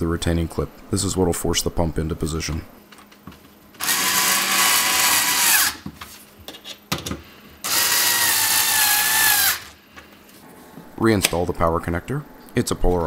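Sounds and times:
cordless screwdriver motor whine: 3.8 - 5.8, 7.7 - 9.7.

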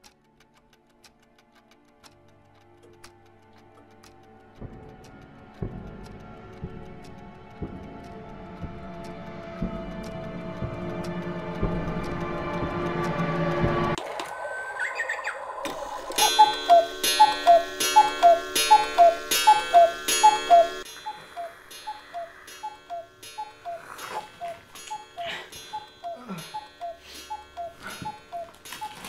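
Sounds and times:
cuckoo clock calling: 14.0 - 29.0
ringing chime: 16.0 - 29.0.

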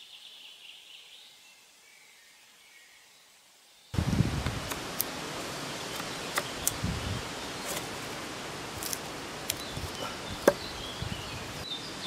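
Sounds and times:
outdoor background noise: 0.0 - 12.0
knife cutting into wood: 5.9 - 6.8, 7.6 - 8.1, 8.7 - 10.7.

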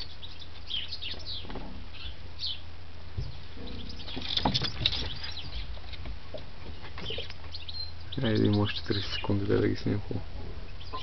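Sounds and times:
rabbits scuffling in a cage: 0.0 - 11.0
small birds chirping: 0.0 - 11.0
sharp taps and rustles: 4.0 - 7.6.

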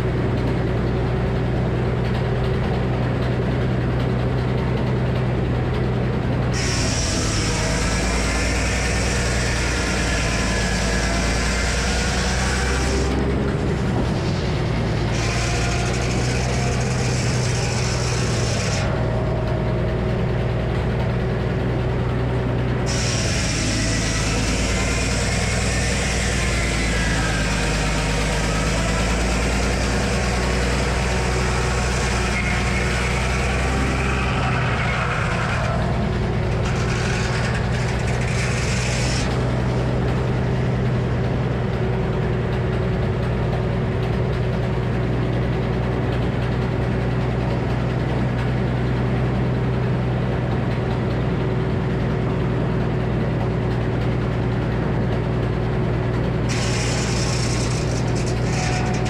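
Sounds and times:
sawmill low drone: 0.0 - 59.0
circular saw cutting wood: 6.2 - 43.3, 56.3 - 59.0
saw blade spinning free: 6.5 - 19.6, 22.8 - 41.4, 56.5 - 59.0.

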